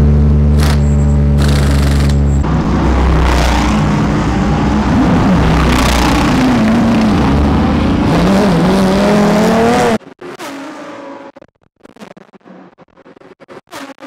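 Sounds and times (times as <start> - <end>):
race car engine running: 0.0 - 10.0.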